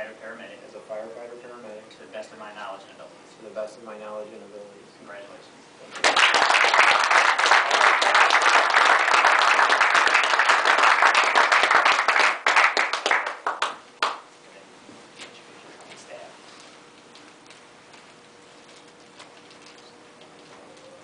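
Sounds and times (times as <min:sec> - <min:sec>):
many hands clapping: 0:05.9 - 0:14.3.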